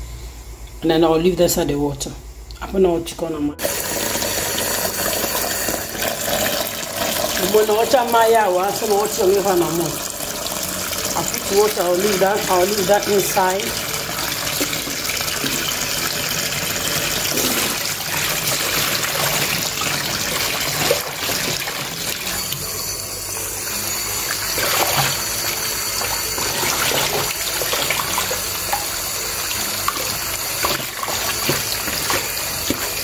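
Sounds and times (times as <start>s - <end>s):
water splashing: 17.2s - 22.5s, 24.4s - 29.0s, 29.7s - 33.0s.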